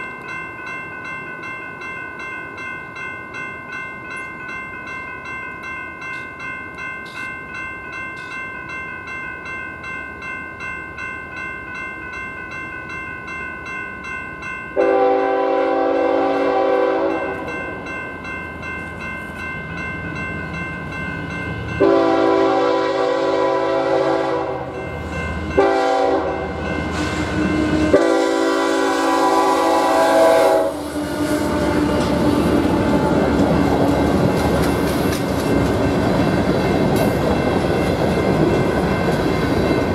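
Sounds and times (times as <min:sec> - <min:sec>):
crossing warning bell ringing: 0:00.0 - 0:39.9
locomotive horn blasts: 0:14.8 - 0:17.5, 0:21.8 - 0:24.7, 0:25.6 - 0:32.2
train wheels clattering over rails: 0:30.8 - 0:39.9.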